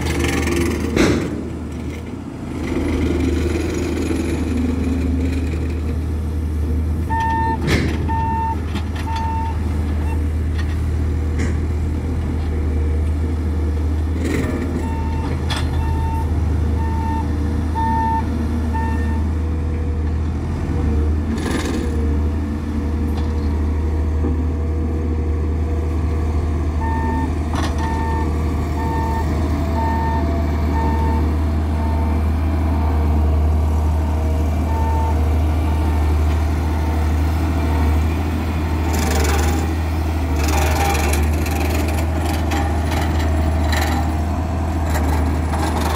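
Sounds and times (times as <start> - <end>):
heavy diesel engines droning: 0.0 - 45.9
reversing alarm beeping: 7.1 - 10.2, 14.8 - 19.2, 26.8 - 32.2, 34.7 - 35.2.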